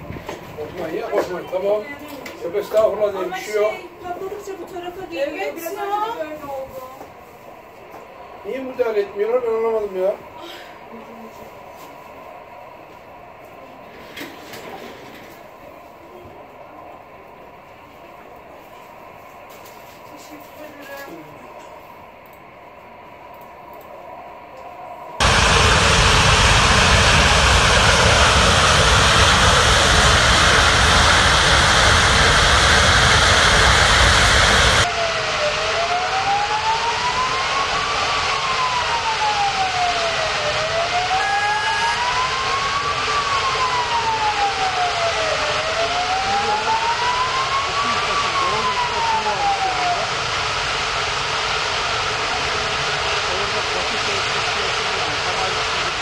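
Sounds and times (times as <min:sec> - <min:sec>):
emergency vehicle siren wailing: 0:25.2 - 0:56.0
roar of burning gas: 0:25.2 - 0:56.0.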